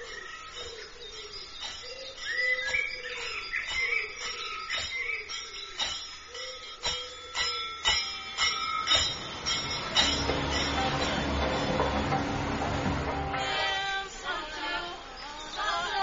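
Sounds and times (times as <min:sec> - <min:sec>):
light bell-like strikes: 0:00.0 - 0:13.6
held high tone: 0:07.4 - 0:14.8
pop song: 0:10.8 - 0:16.0.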